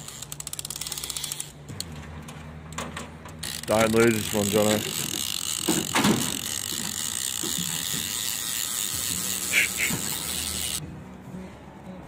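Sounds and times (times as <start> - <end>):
fishing reel drag clicker buzzing: 3.4 - 10.8.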